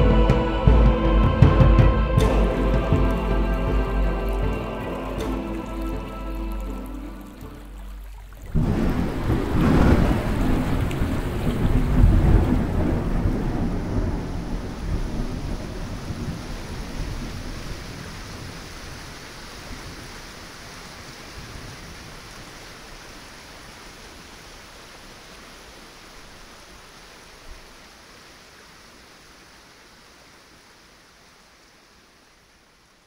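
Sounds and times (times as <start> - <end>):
steady rain hiss: 0.0 - 33.0
low thunder rumble: 8.5 - 18.9.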